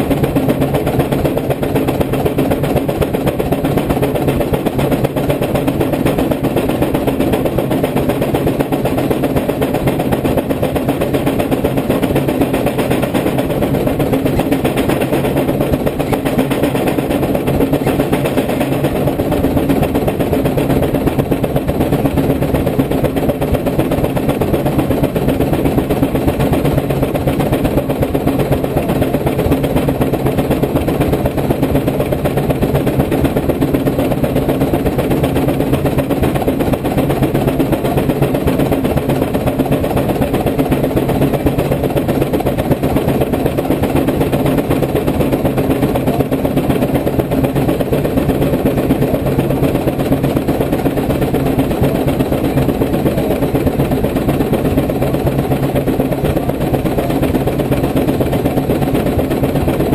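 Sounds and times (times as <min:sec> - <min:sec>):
steam engine exhaust chuffing: 0:00.0 - 0:59.9.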